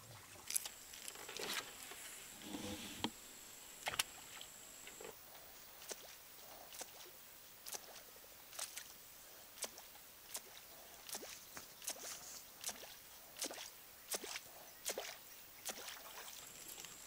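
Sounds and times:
lure splashing on water: 9.6s - 17.0s.

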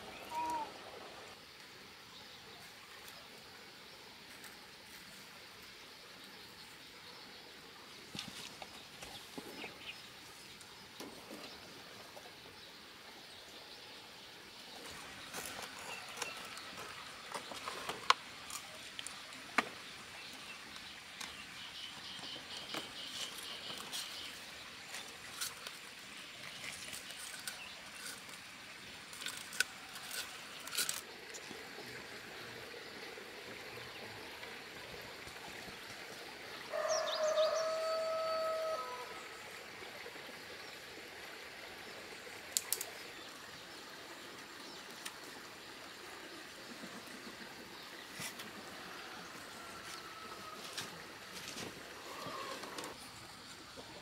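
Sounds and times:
faint bird calls: 0.0s - 1.0s, 52.0s - 54.0s.

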